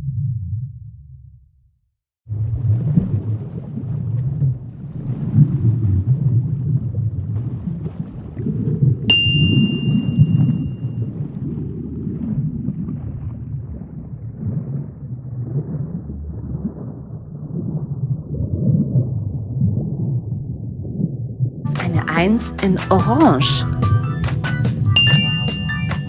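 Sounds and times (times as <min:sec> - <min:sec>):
underwater rumble: 0:02.3 - 0:21.7
bright ding: 0:09.1 - 0:11.0, 0:25.0 - 0:26.0.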